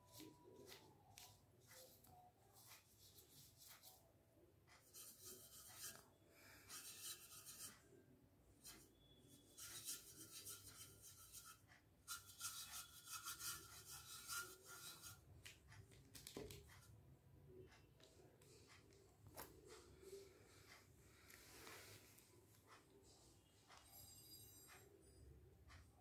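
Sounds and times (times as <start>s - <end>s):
paintbrush rubbing on paper: 0.1s - 4.0s, 4.7s - 7.9s, 8.6s - 15.3s.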